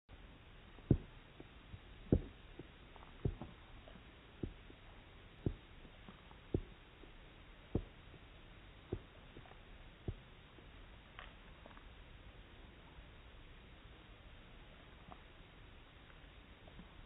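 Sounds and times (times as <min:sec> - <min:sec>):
low deep thuds: 0:00.8 - 0:10.8.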